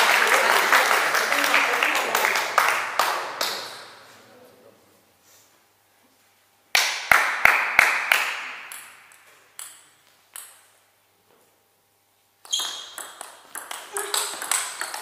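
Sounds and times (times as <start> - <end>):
table tennis rally: 6.8 - 10.9, 12.4 - 15.0
table tennis ball bouncing: 8.4 - 10.8, 12.4 - 15.0.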